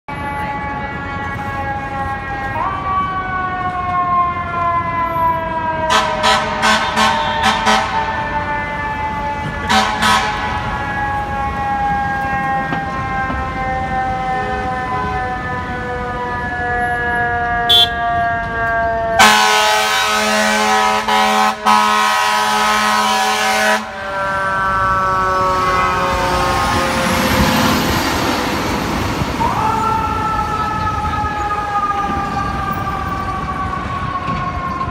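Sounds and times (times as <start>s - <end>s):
fire engine siren winding: 1.3s - 34.9s
air horn blast: 5.9s - 8.1s, 9.6s - 10.6s, 19.2s - 24.0s, 25.4s - 27.7s.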